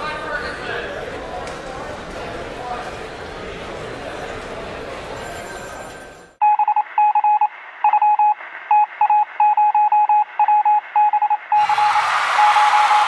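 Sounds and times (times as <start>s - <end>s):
high electronic beeps: 6.4s - 13.0s.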